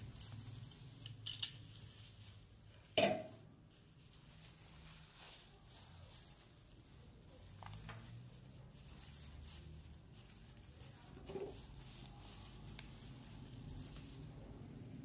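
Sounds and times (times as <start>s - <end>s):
soft taps and rustles: 7.4s - 8.4s.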